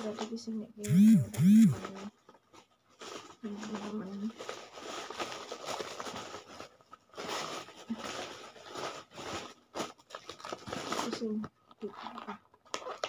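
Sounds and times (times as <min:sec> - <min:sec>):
plastic bags rustling and crinkling: 0:01.8 - 0:13.0.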